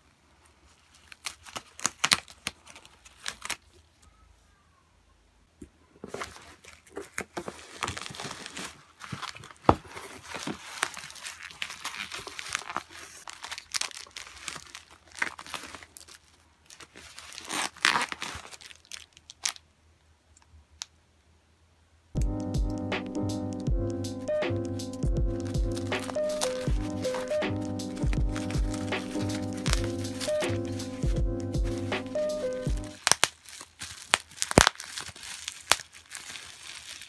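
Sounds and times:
bubble wrap crinkling: 0.0 - 4.2, 6.0 - 19.7, 25.0 - 37.0
sharp crack: 25.8 - 31.0, 34.0 - 34.9.

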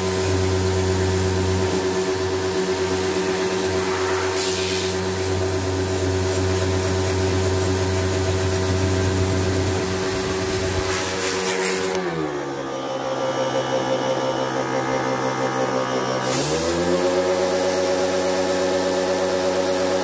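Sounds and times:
pressure washer motor whine: 0.0 - 20.0
water jet hissing: 1.7 - 12.0.

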